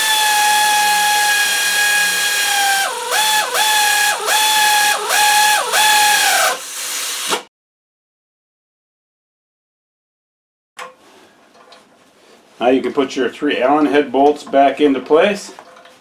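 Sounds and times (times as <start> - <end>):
power drill whining: 0.0 - 7.4.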